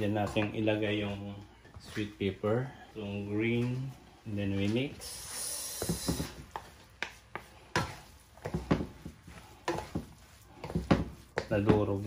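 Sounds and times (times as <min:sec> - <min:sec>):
wooden spatula scraping pan: 0:05.8 - 0:12.0.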